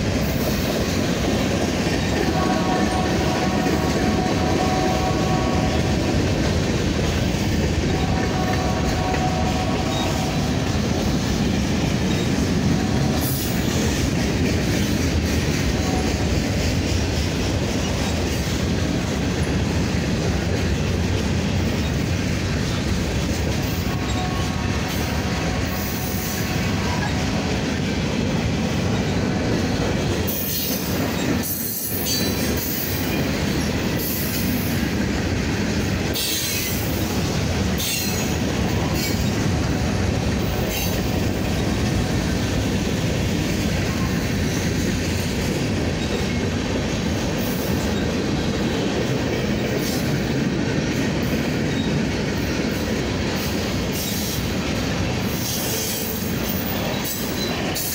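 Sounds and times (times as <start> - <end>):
train wheels rumbling on rail: 0.0 - 57.9.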